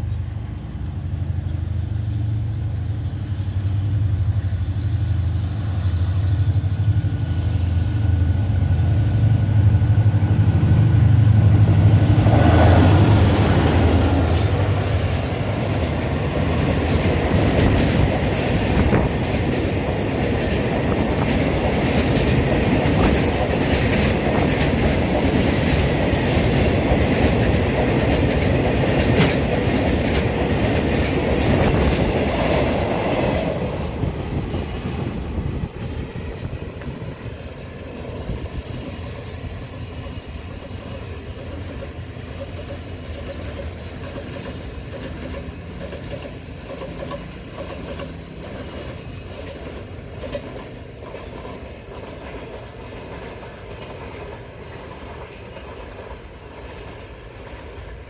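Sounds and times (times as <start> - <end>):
diesel locomotive engine: 0.0 - 58.0
train wagons rushing past: 0.0 - 58.0
wheels clicking over rail joints: 12.3 - 58.0.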